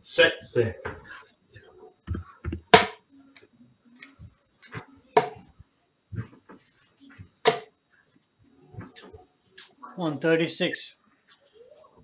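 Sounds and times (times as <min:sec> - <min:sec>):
darts thudding into dartboard: 0:07.4 - 0:07.7.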